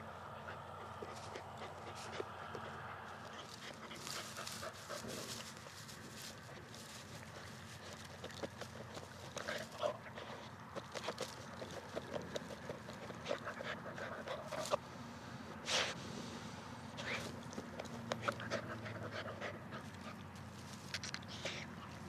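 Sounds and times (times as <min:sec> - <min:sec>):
dog panting hard: 0:07.3 - 0:14.8, 0:17.0 - 0:20.3
sharp breathy huff: 0:15.6 - 0:16.5.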